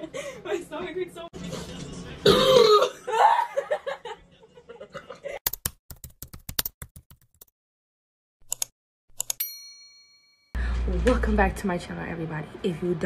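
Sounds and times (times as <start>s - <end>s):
woman laughing: 0.0s - 1.0s, 3.0s - 5.4s
keyboard typing clicks: 8.4s - 9.4s.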